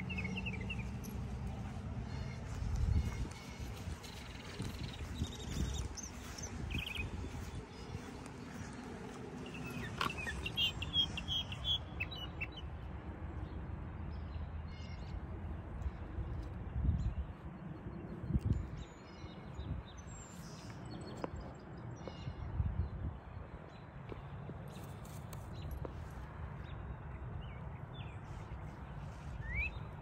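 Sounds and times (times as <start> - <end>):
steady low rumble: 0.0 - 11.6
songbirds chirping: 0.0 - 30.0.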